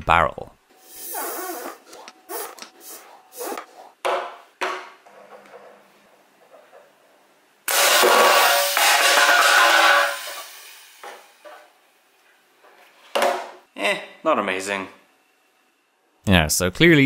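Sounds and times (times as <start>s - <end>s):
foot air pump strokes: 0.8s - 4.0s.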